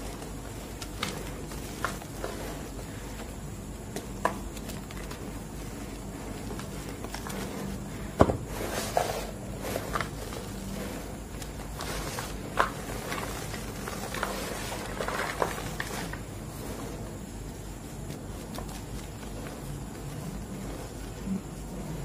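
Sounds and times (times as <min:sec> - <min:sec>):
chalk chunks crunching: 0:00.0 - 0:21.8
gritty rustle of chalk powder: 0:00.0 - 0:22.0.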